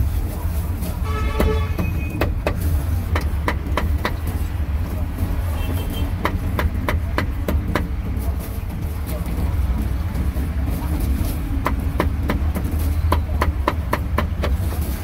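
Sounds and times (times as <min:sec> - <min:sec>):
road traffic rumble: 0:00.0 - 0:15.0
cleaver chopping on board: 0:11.6 - 0:14.6.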